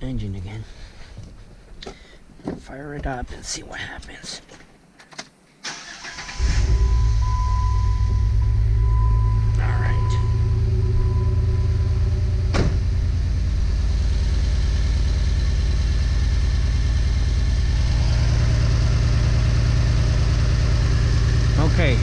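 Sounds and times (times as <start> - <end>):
car engine idling with misfires: 5.8 - 22.0.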